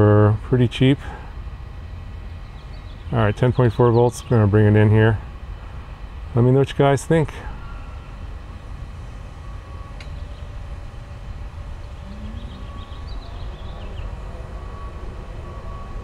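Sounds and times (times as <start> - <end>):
drone motors whirring: 9.4 - 15.9.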